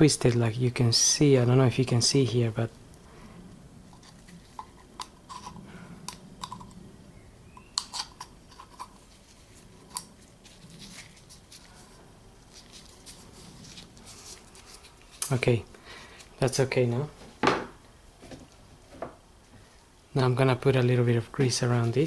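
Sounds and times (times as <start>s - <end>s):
small handling noises: 3.8s - 6.8s, 7.5s - 20.0s.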